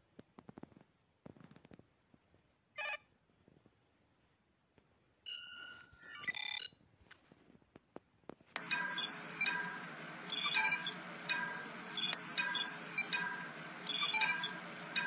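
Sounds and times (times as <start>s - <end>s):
high beeps: 5.3s - 6.7s, 8.6s - 15.0s
fast warbling electronic trill: 8.6s - 15.0s
short electronic chirp: 8.7s - 15.0s.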